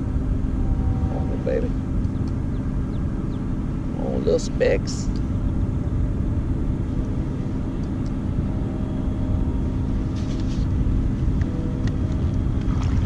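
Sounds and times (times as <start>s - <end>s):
wind buffeting microphone: 0.0s - 3.8s.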